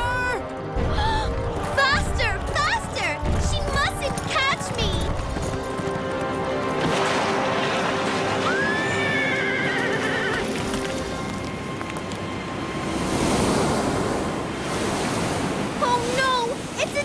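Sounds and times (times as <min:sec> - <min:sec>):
background music held notes: 0:00.0 - 0:15.8
horse whinnying: 0:08.4 - 0:10.7
surf rushing: 0:12.8 - 0:17.0.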